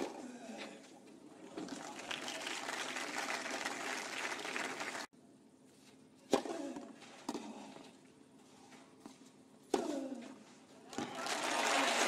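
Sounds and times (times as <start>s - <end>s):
crowd applauding: 1.6s - 5.1s, 11.1s - 12.0s.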